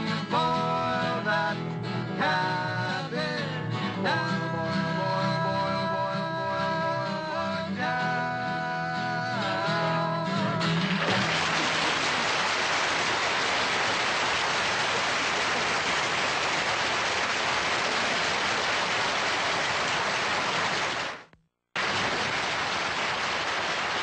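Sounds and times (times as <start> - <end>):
studio audience applauding: 10.8 - 24.0.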